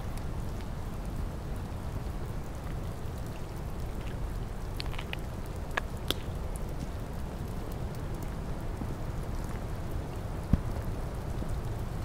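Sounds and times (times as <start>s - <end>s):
raindrops ticking: 0.0s - 12.0s
steady rain falling: 0.0s - 12.0s.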